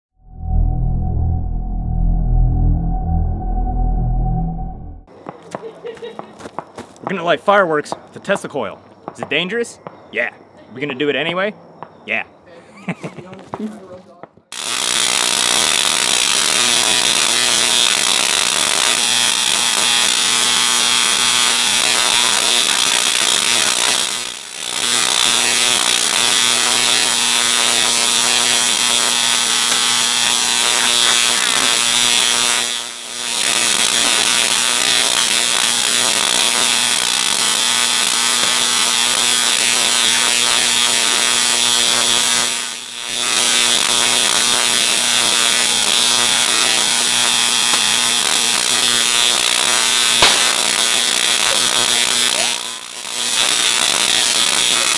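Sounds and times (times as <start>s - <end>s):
tesla coil buzzing crackle: 14.6s - 54.9s.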